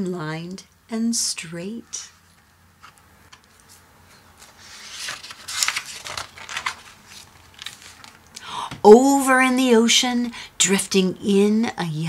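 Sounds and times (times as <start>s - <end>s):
book page turning: 2.8s - 8.2s.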